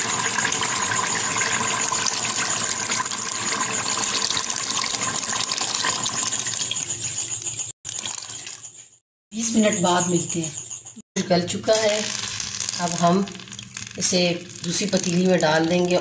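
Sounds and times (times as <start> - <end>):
water pouring into pot: 0.0 - 6.9, 7.9 - 8.6, 11.8 - 16.0.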